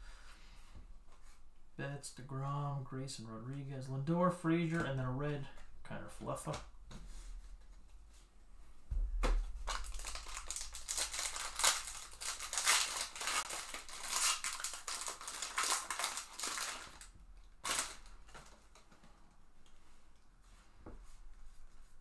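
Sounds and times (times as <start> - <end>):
foil wrapper crinkling and tearing: 9.6 - 18.6
wrapper rustle: 9.6 - 18.9.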